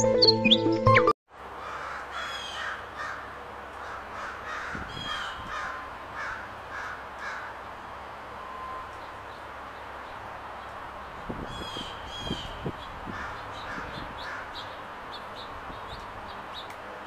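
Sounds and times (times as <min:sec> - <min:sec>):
steady outdoor hiss: 0:01.3 - 0:17.0
harsh bird call: 0:01.6 - 0:07.6, 0:11.4 - 0:16.0
high falling bird chirps: 0:08.3 - 0:16.8.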